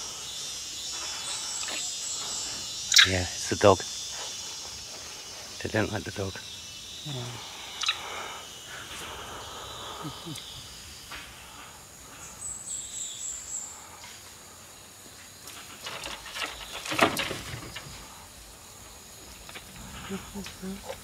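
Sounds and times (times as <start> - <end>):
higher insect buzz: 0.0 - 21.0
insects buzzing: 0.0 - 21.0.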